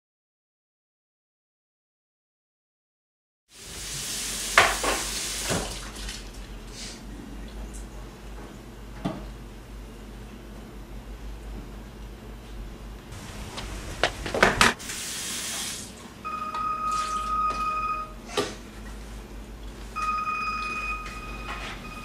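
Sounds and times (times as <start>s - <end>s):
faucet running: 3.6s - 6.4s, 14.8s - 16.0s, 16.8s - 17.6s
dishes clinking in sink: 4.6s - 5.8s.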